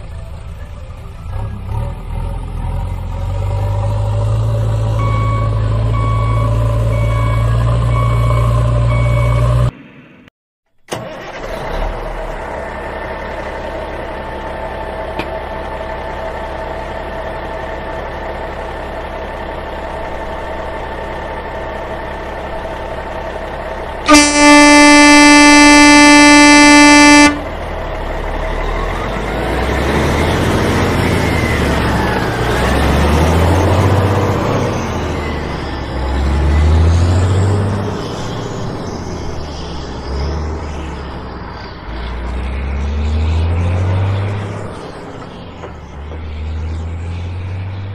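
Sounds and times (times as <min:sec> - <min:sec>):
truck engine idling and revving: 0:00.0 - 0:47.9
loud truck horn: 0:24.1 - 0:27.6.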